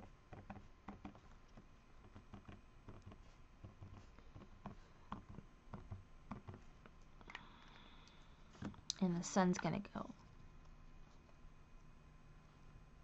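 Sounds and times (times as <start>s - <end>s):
pen tip tapping and scratching paper: 0.0s - 7.0s.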